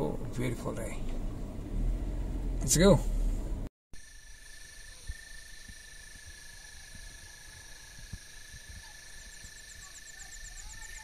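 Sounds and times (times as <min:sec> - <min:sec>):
insects trilling: 0:04.0 - 0:11.0
rapid pulsed insect chirp: 0:04.0 - 0:11.0.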